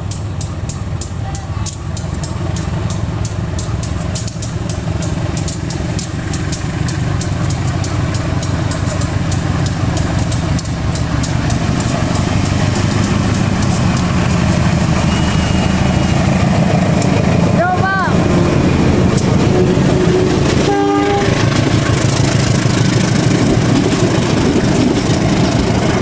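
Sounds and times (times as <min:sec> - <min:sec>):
sharp clicks: 0:00.0 - 0:17.2
diesel locomotive engine hum: 0:00.0 - 0:26.0.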